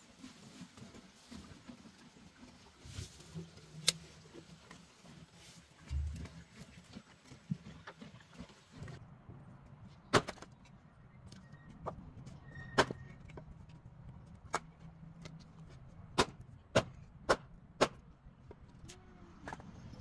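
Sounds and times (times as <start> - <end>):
axe chopping wood: 16.1 - 18.0.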